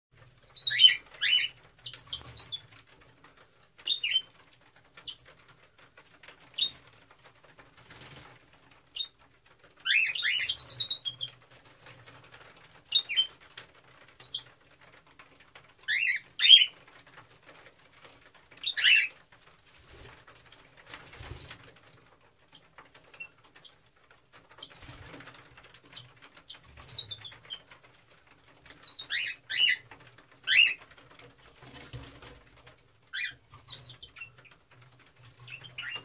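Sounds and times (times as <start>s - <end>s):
cockatiels chirping: 0.5s - 2.6s, 9.9s - 11.2s, 15.9s - 16.7s, 18.6s - 19.1s, 28.8s - 29.8s, 30.5s - 30.8s, 33.2s - 34.3s, 35.5s - 36.0s.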